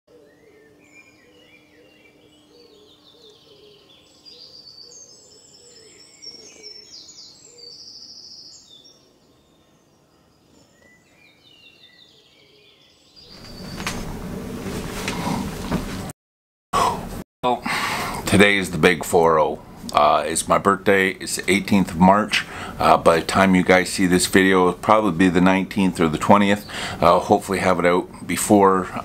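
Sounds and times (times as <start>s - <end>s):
birds chirping and trilling: 0.1s - 14.1s, 17.7s - 29.0s
rustling against microphone: 13.2s - 16.1s.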